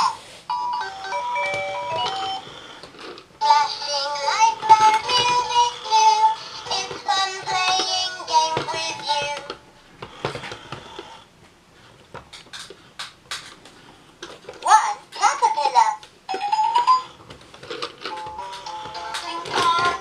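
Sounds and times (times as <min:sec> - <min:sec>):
toy ball rolling on floor: 0:00.8 - 0:11.3, 0:16.3 - 0:20.0.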